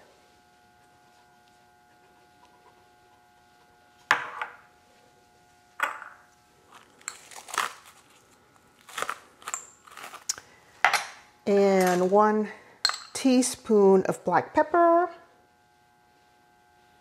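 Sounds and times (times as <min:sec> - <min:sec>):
utensils clicking and clattering: 0:11.0 - 0:12.2.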